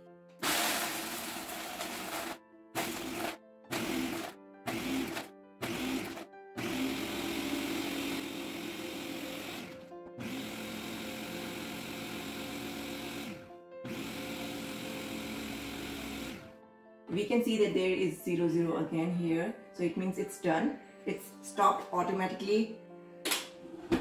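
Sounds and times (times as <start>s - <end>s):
blender crushing ice: 0.4s - 16.5s.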